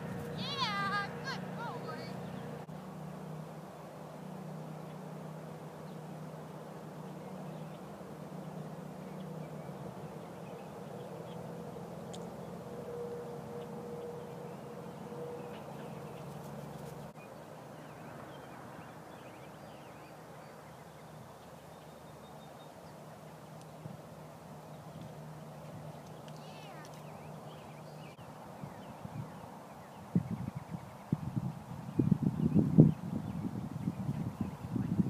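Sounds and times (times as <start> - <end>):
low hum: 0.0 - 29.5.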